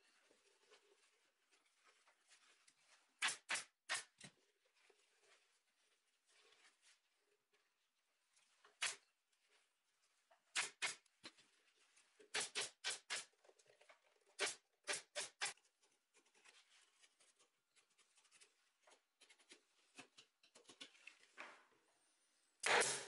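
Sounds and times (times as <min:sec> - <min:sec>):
pneumatic staple gun firing: 0:22.6 - 0:23.0.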